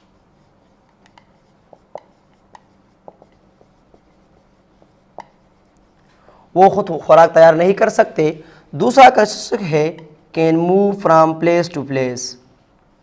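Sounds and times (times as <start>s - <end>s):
marker scratching on whiteboard: 0.0s - 6.0s.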